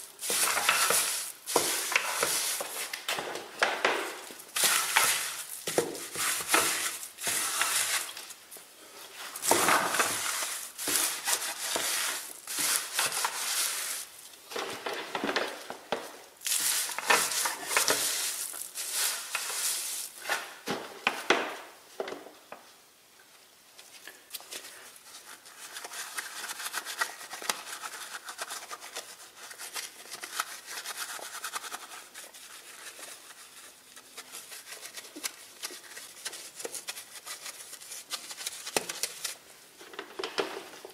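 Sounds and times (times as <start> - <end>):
brush scrubbing wheel: 0.0 - 3.0, 4.4 - 8.2, 9.3 - 14.1, 16.4 - 20.2.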